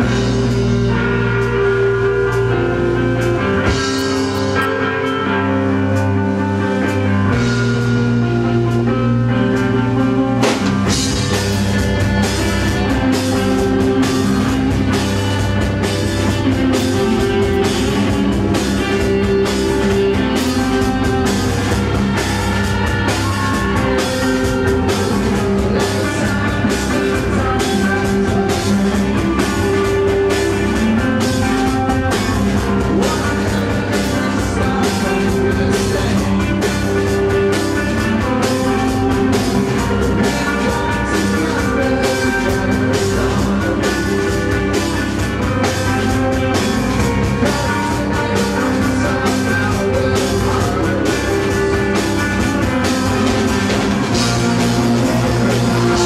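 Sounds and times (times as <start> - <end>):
drum kit beat: 0.0 - 5.2, 9.6 - 56.0
droning electric guitars: 0.0 - 56.0
live rock band: 0.0 - 56.0.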